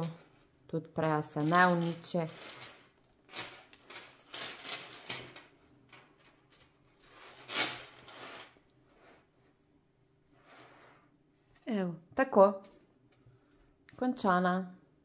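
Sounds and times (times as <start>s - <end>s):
chain and clasp clinking: 1.3s - 8.4s.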